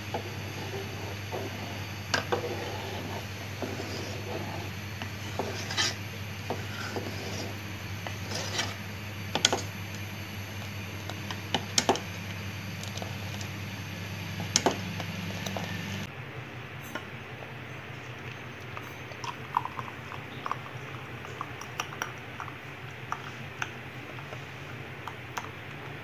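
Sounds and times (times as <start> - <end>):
steady low hum: 0.0 - 26.0
ladle stirring milk in metal pot: 0.1 - 9.6.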